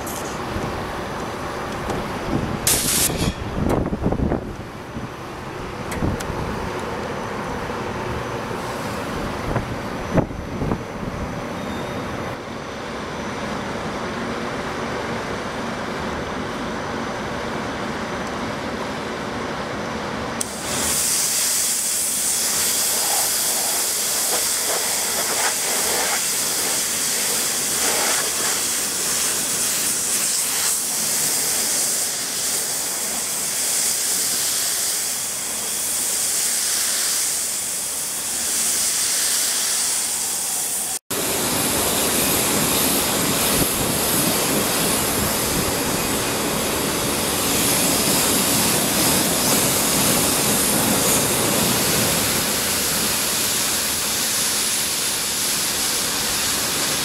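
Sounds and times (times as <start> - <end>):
pressure washer spray hiss: 2.6 - 3.9, 20.4 - 57.0.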